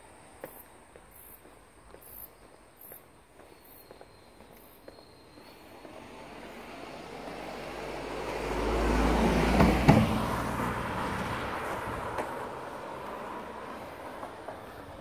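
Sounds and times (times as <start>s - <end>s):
car driving past: 5.6s - 15.0s.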